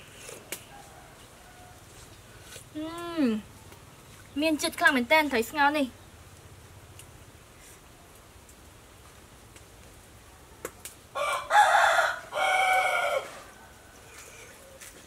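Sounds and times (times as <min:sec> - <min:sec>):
rooster crowing: 0:00.7 - 0:02.0, 0:11.2 - 0:14.4.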